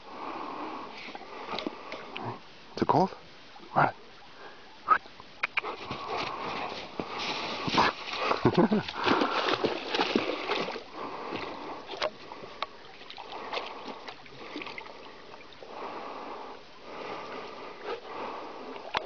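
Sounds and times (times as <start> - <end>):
dog splashing through water: 5.6 - 12.2.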